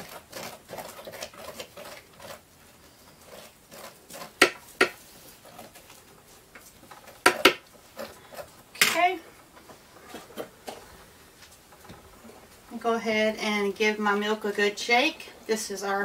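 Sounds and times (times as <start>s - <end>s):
spoon scraping pumpkin pulp: 0.0s - 8.8s.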